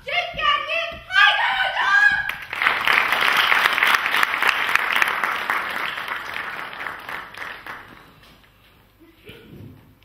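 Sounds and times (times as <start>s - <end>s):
audience applauding: 2.3s - 8.5s.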